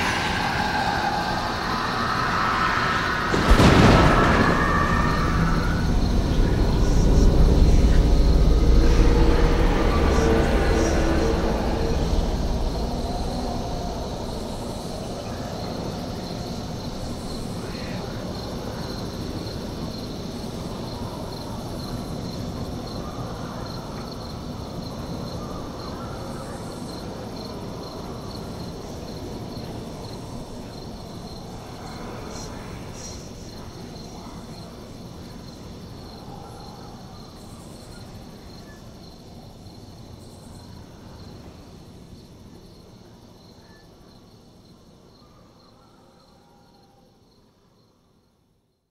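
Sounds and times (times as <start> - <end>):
low background rumble: 0.0 - 18.0
crickets chirping: 0.0 - 48.9.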